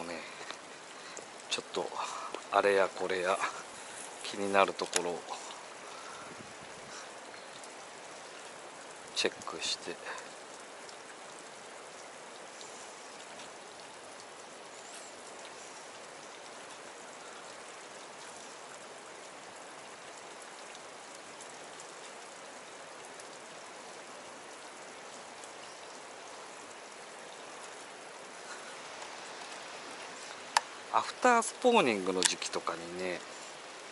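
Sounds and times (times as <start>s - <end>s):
small water cascade: 0.0s - 33.9s
stream water flowing: 0.0s - 33.9s
faint ticks: 0.3s - 1.5s, 2.1s - 2.5s, 3.4s - 9.5s, 24.7s - 30.8s.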